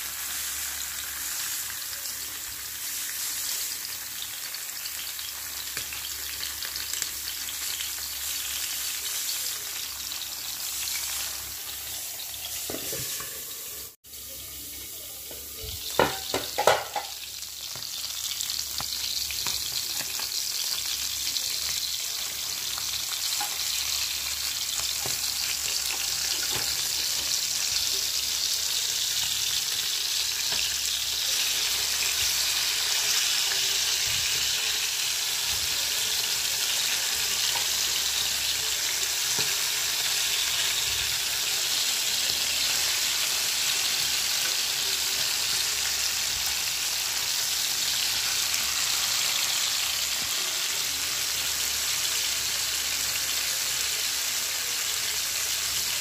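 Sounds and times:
fish sizzling in hot oil: 0.0 - 56.0.

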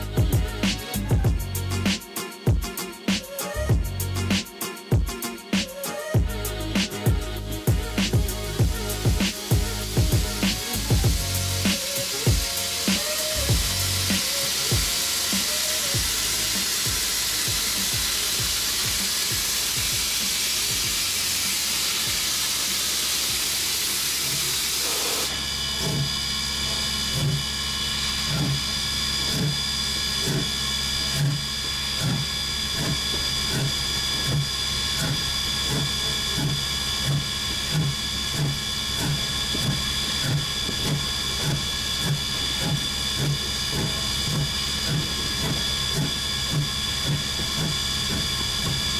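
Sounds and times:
steam hissing: 7.8 - 25.3.

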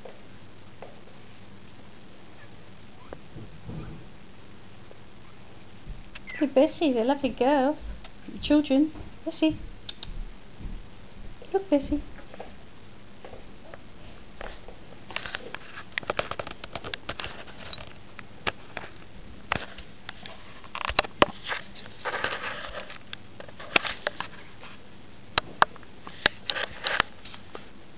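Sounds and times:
puppies suckling clicks: 9.9 - 10.2.

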